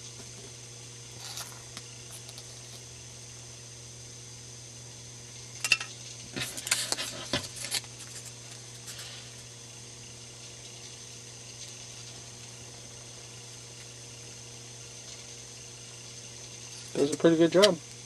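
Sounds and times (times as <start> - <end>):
steady low hum: 0.0 - 18.0
foam clicks and scraping rustles: 6.3 - 9.2.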